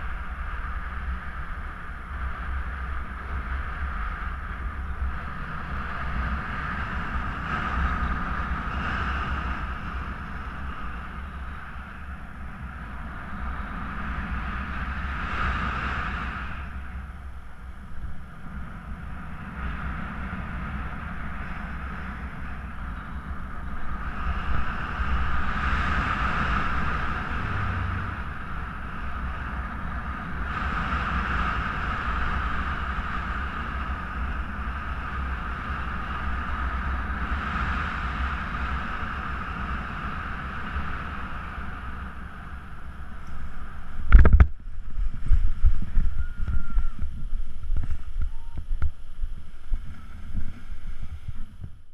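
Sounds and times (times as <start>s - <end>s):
wind buffeting microphone: 0.0s - 51.9s
wind rushing over microphone: 0.0s - 51.9s.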